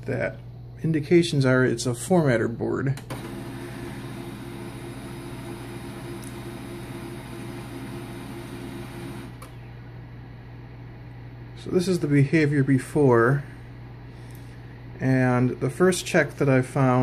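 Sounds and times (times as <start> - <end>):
printer motor running: 3.0 - 9.6.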